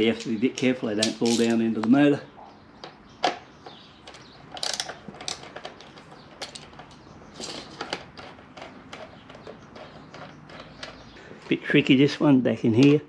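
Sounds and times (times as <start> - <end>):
socket ratchet clicking: 4.1 - 8.0.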